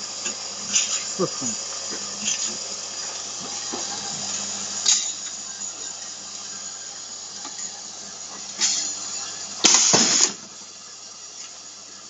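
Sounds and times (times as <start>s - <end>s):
loud air hiss burst: 9.6s - 10.4s.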